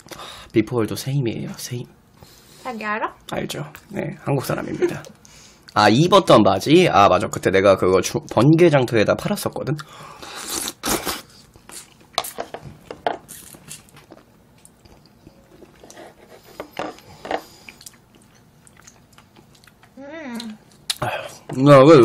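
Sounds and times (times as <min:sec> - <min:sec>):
slurping and chewing: 0:09.8 - 0:12.4, 0:13.3 - 0:21.5.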